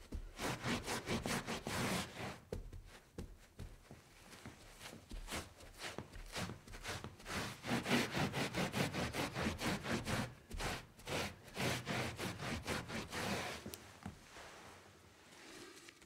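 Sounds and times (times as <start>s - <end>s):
scrubbing strokes on hard surface: 4.3s - 16.0s.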